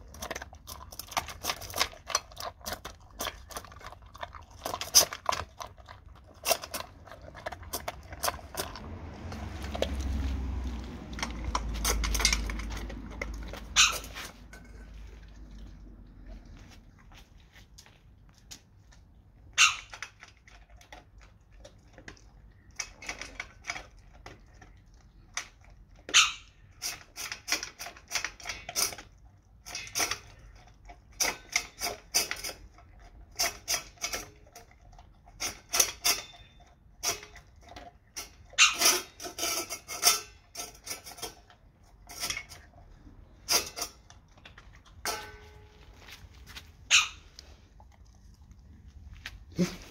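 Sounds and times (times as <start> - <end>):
dog crunching dry kibble: 0.0 - 49.9
metal bowl clinking on tile floor: 45.0 - 45.9.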